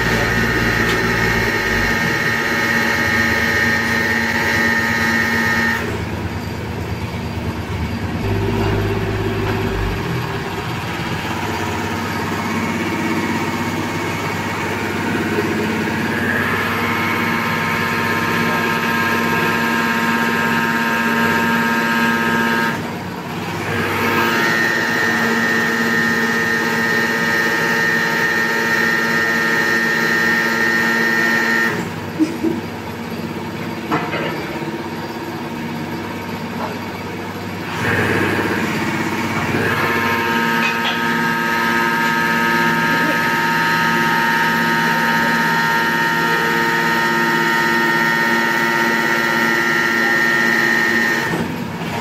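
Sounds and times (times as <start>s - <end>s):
pile-driving rig motor whining: 0.0s - 52.0s.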